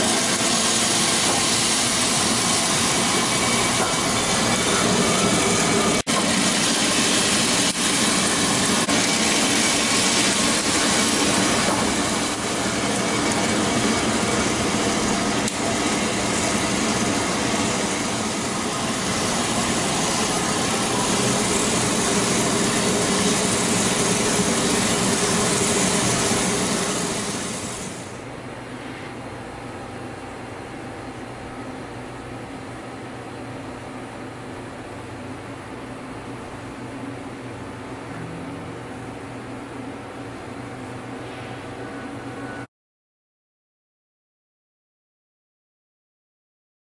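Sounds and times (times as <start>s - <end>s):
coffee beans rattling in roaster: 0.0s - 28.1s.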